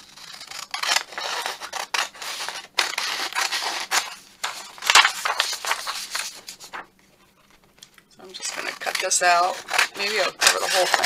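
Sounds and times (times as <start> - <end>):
scissors snipping paper: 8.4 - 11.0.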